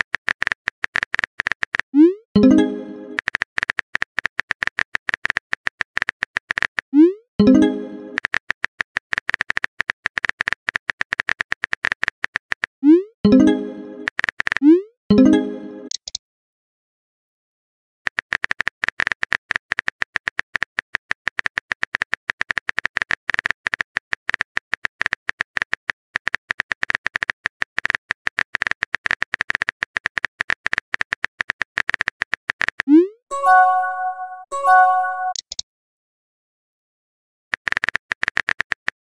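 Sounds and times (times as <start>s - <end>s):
phone keyboard typing clicks: 2.4s - 12.7s, 18.1s - 32.9s, 34.8s - 35.6s, 37.5s - 39.0s.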